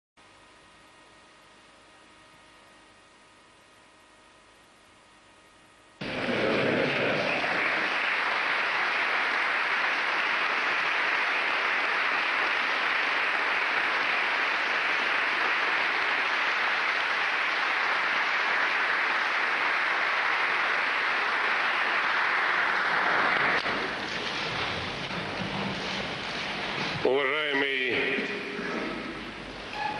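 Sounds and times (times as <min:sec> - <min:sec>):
audience applause: 0:06.0 - 0:29.4.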